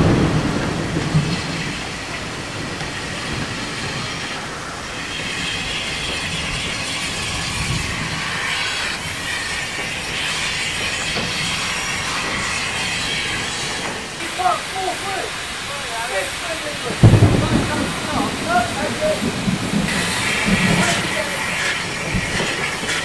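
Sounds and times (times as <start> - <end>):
train wheels clacking over rail joints: 0.0 - 23.0
high wheel squeal: 1.3 - 16.8.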